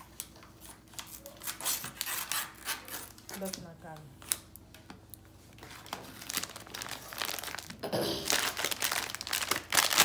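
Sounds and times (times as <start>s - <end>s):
plastic bag crinkling: 5.5s - 10.0s.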